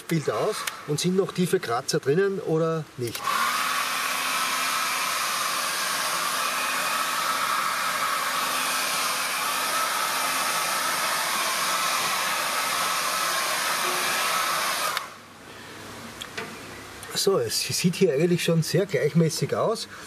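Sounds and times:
hair dryer blowing: 0.2s - 1.2s, 3.1s - 15.3s.

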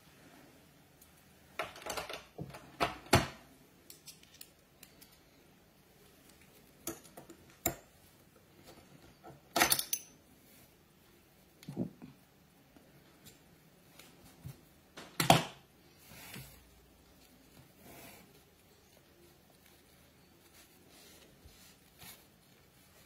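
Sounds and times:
tools clicking and clattering: 9.4s - 10.2s.

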